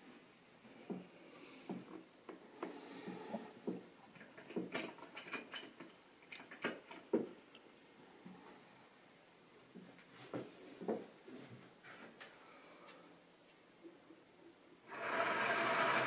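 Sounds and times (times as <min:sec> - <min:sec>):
model train wheels clicking: 0:14.9 - 0:16.0.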